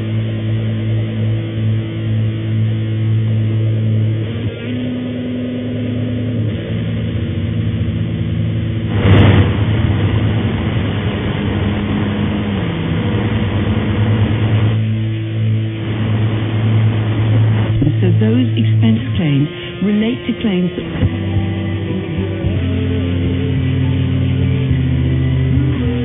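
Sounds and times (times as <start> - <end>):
electronic static hiss: 0.0 - 26.0
low hum: 0.0 - 26.0
crackling noise burst: 7.4 - 18.9.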